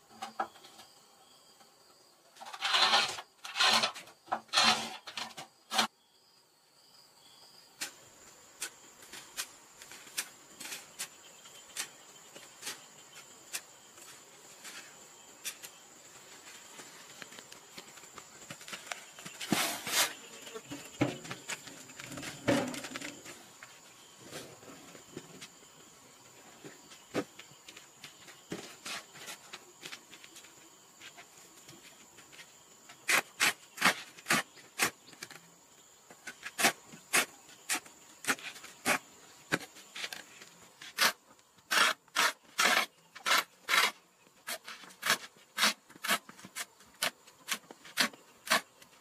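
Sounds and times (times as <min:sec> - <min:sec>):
high insect drone: 0:00.1 - 0:45.0
scraping sand and cement: 0:02.4 - 0:05.9, 0:16.4 - 0:23.4.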